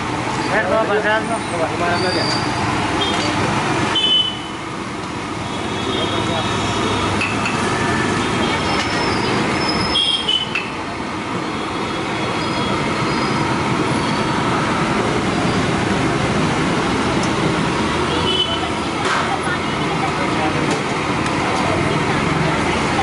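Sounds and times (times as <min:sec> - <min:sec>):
short high-pitched squeal: 0:11.8 - 0:14.5.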